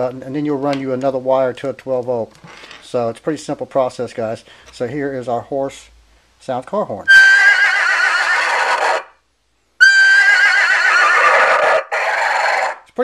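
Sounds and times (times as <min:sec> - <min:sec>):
car horn playing horse whinny: 0:07.1 - 0:09.1, 0:09.8 - 0:11.6.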